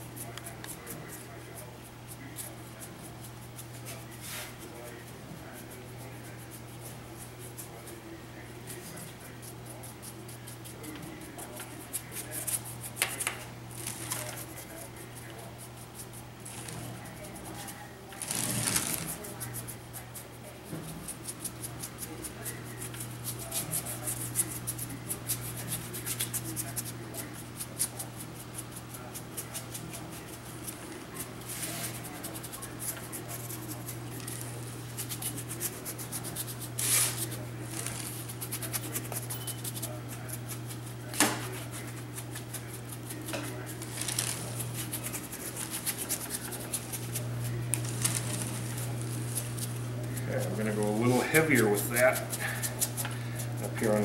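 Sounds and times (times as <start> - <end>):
steady low hum: 0.0 - 54.0
paintbrush scrubbing rough concrete: 2.1 - 8.0, 16.0 - 20.2, 29.1 - 54.0.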